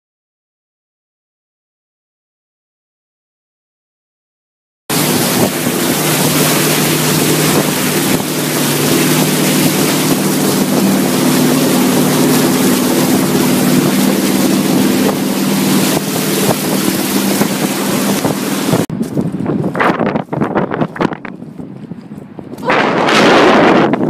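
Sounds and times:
water rushing and splashing: 4.9 - 24.0.

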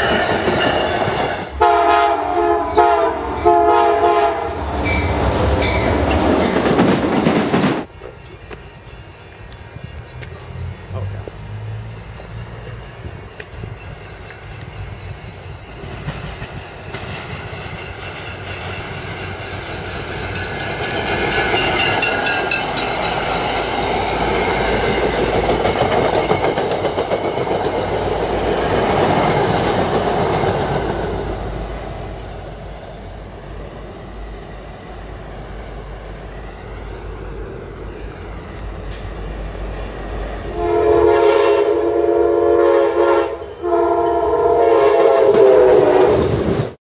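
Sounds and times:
rapid train bell ringing: 0.0 - 1.2, 7.8 - 29.4
train rumble and clickety-clack: 0.0 - 46.8
locomotive horn: 1.5 - 4.7, 40.5 - 46.4.

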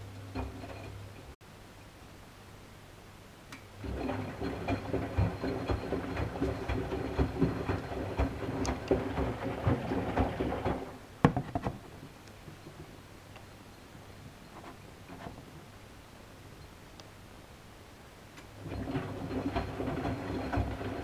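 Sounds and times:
water sloshing: 3.8 - 11.1
washing machine motor humming: 3.8 - 11.2, 18.6 - 21.0
laundry clattering: 3.8 - 13.0, 18.5 - 21.0.

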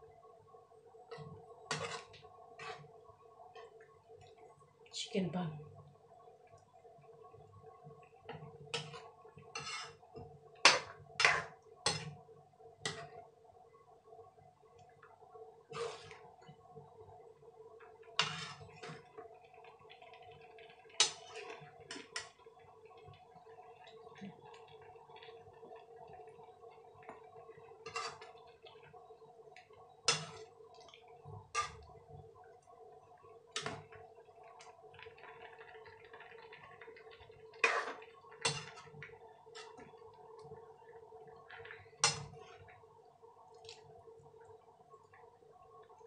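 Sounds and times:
curry simmering: 0.0 - 46.0
metal spoon scraping a pan: 1.7 - 2.9, 8.7 - 12.2, 15.7 - 16.2, 18.2 - 19.0, 27.9 - 28.3, 30.1 - 30.5, 31.5 - 31.8, 37.6 - 38.8.

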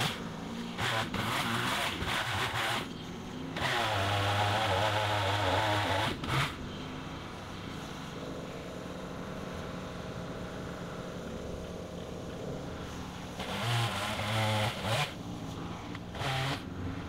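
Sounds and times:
pole chainsaw cutting branch: 0.0 - 2.9, 3.6 - 6.6, 13.3 - 16.7.

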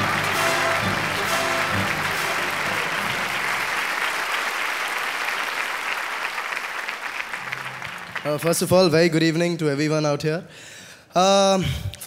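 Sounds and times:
audience applause: 0.0 - 9.0.

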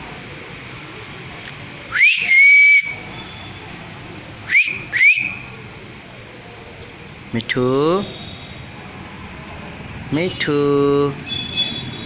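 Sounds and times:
person whistling: 1.9 - 3.0, 4.5 - 5.4.

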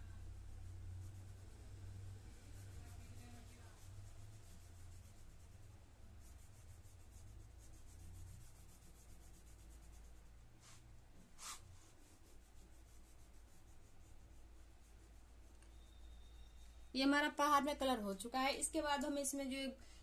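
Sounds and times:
crayon shading on paper: 0.1 - 10.8, 11.4 - 16.4.

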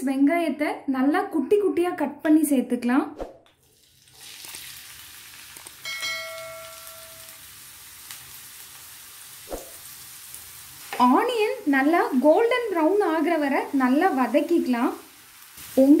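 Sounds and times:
onion sizzling in oil: 3.6 - 16.0
bell-like chime: 5.8 - 7.4.

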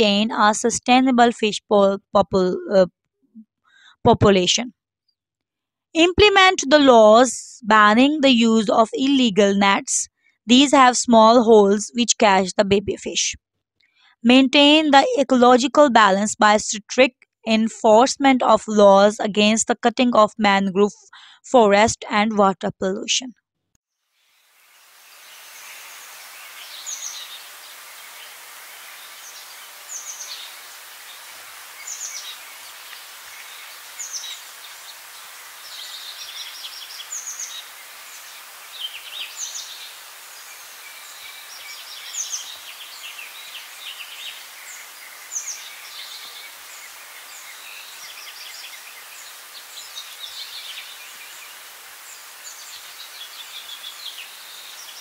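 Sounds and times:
steady background hiss: 24.2 - 55.0
birds singing: 25.1 - 55.0.

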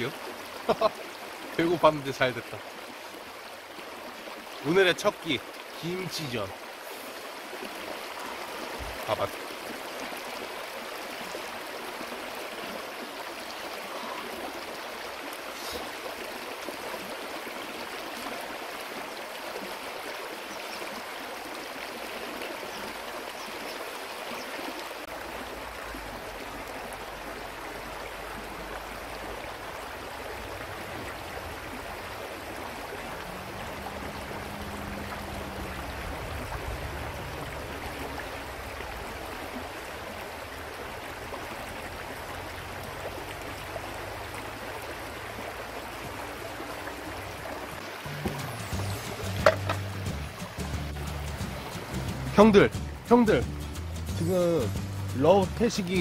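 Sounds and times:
river flowing over rocks: 0.0 - 52.0
low rumble: 33.0 - 39.4.

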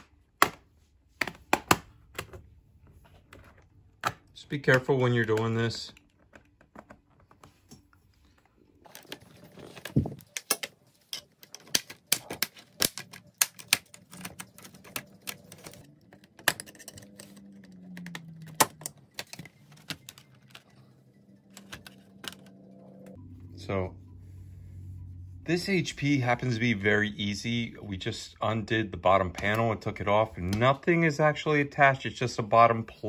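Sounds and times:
plastic clips clicking and cracking: 9.8 - 20.7.

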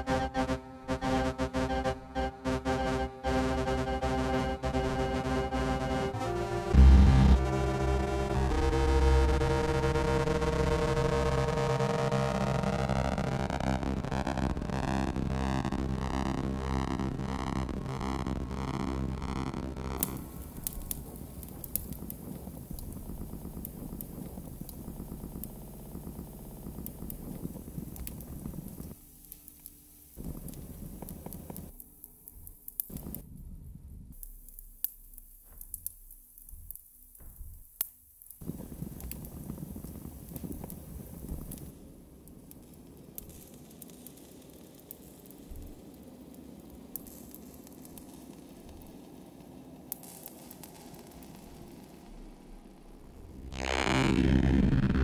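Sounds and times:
loud low-pitched sound: 0.0 - 29.0, 52.3 - 55.0
low grainy electronic rumble: 0.0 - 37.7, 38.4 - 55.0
sharp clicks and crackles: 10.8 - 33.3, 34.1 - 55.0.

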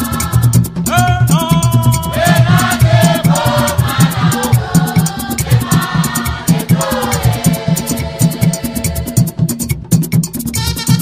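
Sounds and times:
choir singing gospel song: 0.0 - 0.8, 1.5 - 9.5
fast shaker rhythm: 0.0 - 11.0
low drum beats: 0.0 - 11.0.

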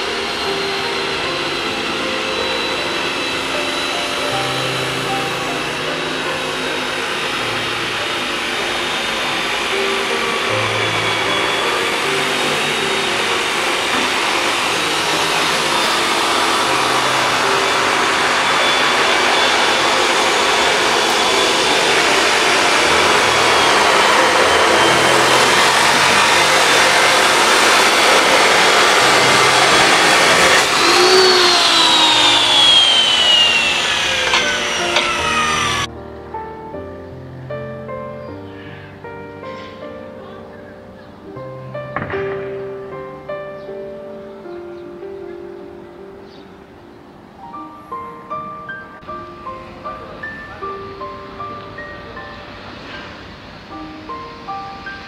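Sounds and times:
angle grinder cutting steel: 0.0 - 35.9
grinder disc spinning down: 0.0 - 35.9.

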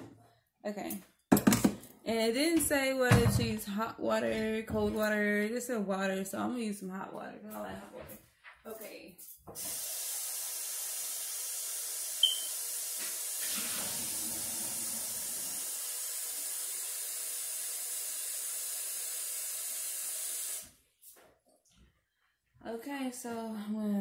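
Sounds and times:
tap running water hiss: 9.5 - 20.8.

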